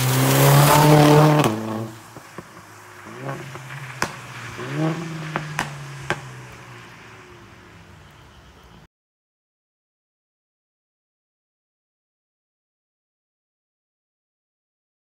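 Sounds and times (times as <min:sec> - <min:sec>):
sharp exhaust pops: 0:00.0 - 0:06.6
car engine at full throttle: 0:00.0 - 0:08.8.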